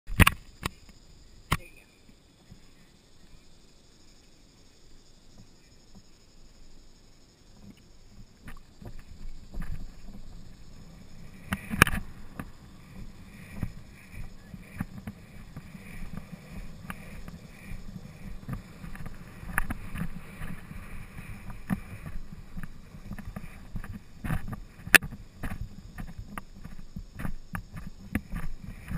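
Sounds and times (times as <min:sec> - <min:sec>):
hoofbeats on grass: 0:07.6 - 0:28.9
wind on microphone: 0:07.6 - 0:28.9.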